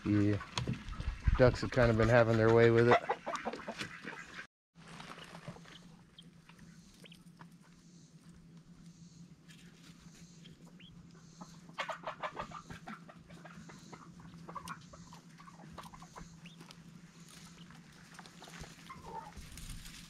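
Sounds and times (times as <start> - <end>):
chickens clucking: 0.0 - 4.5, 5.1 - 20.0
steady low hum: 4.9 - 20.0.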